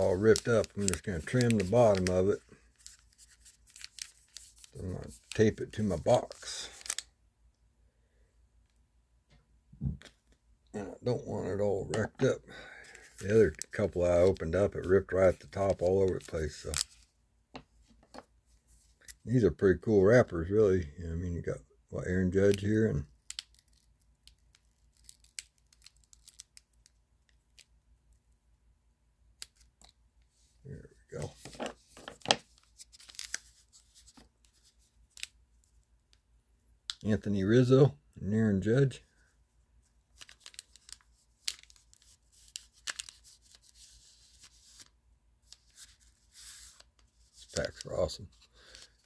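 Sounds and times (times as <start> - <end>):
trading cards flipping: 0.0 - 7.1, 31.2 - 35.4, 40.1 - 49.0.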